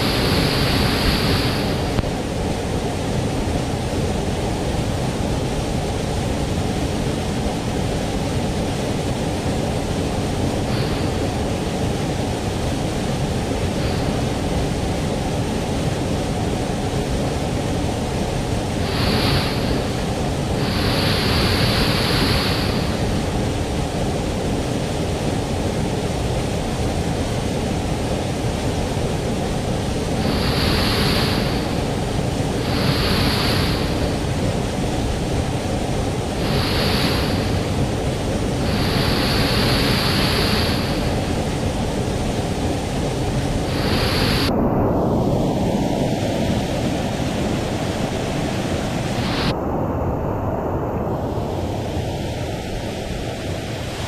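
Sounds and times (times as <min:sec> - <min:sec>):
waterfall rushing: 0:00.0 - 0:05.3, 0:09.4 - 0:17.3, 0:18.2 - 0:23.8, 0:29.4 - 0:44.5
hissing water splash: 0:18.8 - 0:23.3, 0:30.2 - 0:34.9, 0:36.2 - 0:49.5.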